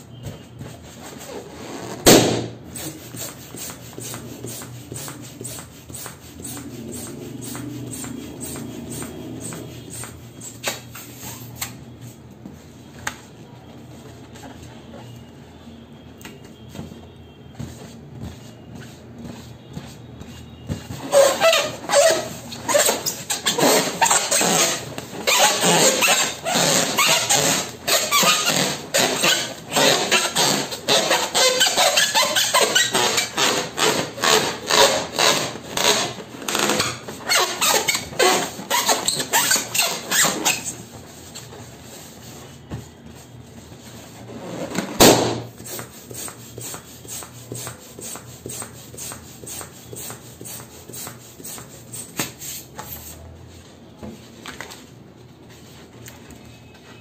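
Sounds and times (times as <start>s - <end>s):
hands rubbing a balloon: 0.1s - 12.6s, 17.5s - 53.2s
balloon popping: 1.8s - 2.6s.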